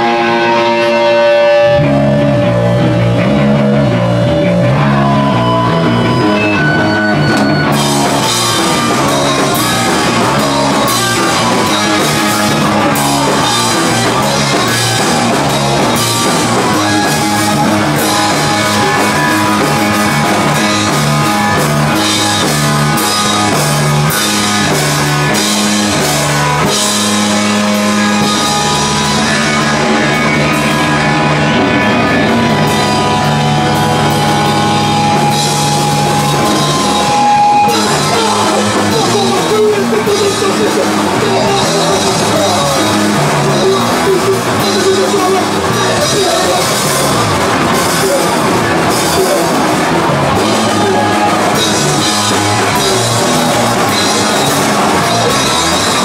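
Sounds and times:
bass guitar: 0.0s - 56.0s
electric guitar: 0.0s - 56.0s.

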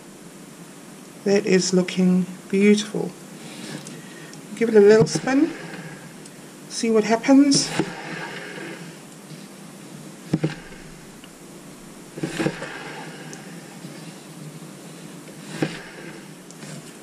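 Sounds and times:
turntable knocking and rubbing: 4.6s - 6.1s, 7.5s - 9.4s, 10.3s - 11.2s, 12.2s - 14.0s, 15.4s - 17.0s.

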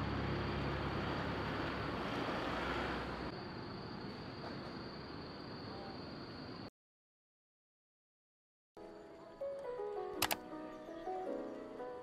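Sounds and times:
passing cars: 0.0s - 3.4s.

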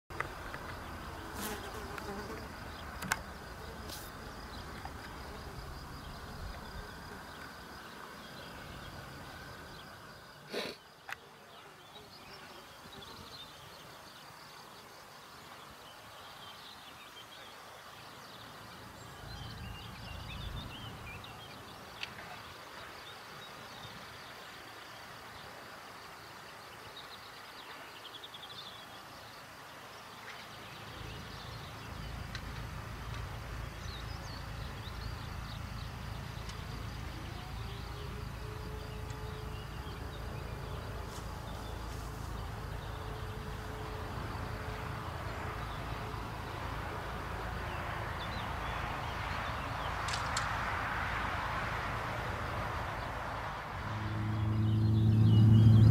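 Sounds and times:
insect buzzing: 0.3s - 13.6s.

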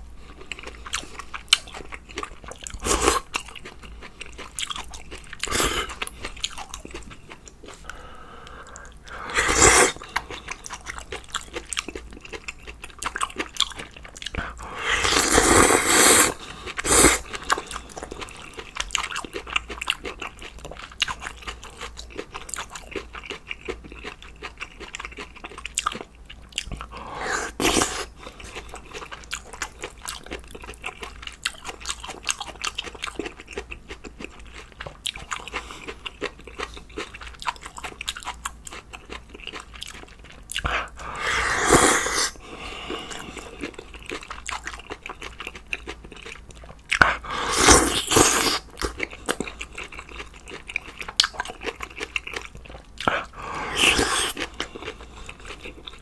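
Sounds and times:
chewing and mouth smacks: 0.3s - 9.2s, 9.9s - 15.4s, 16.3s - 41.1s, 42.9s - 56.0s
slurping noodles: 8.8s - 10.0s, 14.4s - 17.7s, 26.9s - 28.1s, 40.7s - 43.5s, 47.0s - 48.8s, 53.1s - 54.9s.

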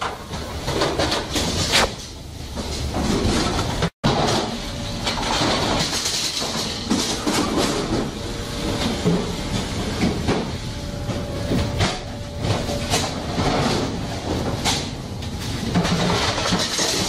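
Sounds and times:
machinery clattering and knocking: 0.0s - 17.0s.

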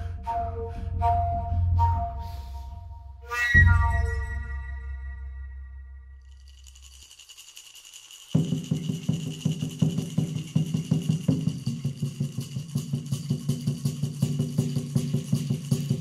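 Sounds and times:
high steady tone: 2.6s - 6.3s
rattle shaking: 6.2s - 16.0s.

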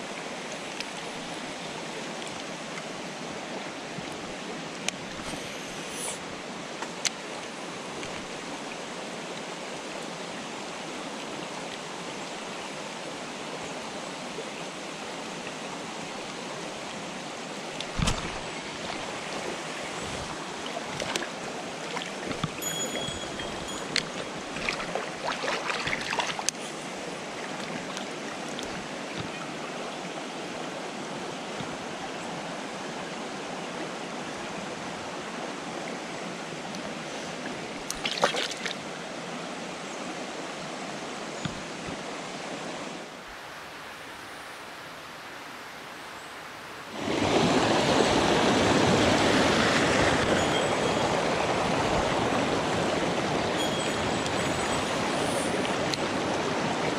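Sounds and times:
water rushing over rocks: 0.0s - 56.9s
brief high ring: 22.6s - 24.0s.

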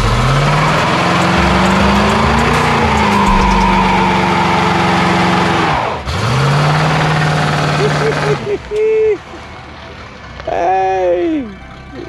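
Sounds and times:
car engine revving: 0.0s - 9.4s.

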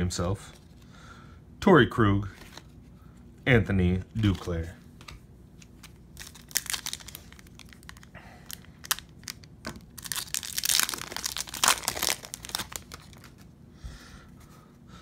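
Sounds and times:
foil wrapper tearing and crinkling: 6.1s - 13.5s.

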